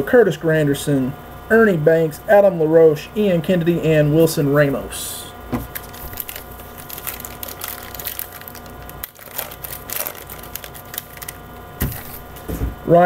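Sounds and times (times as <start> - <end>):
card wrapper crackles and clicks: 5.7 - 12.3.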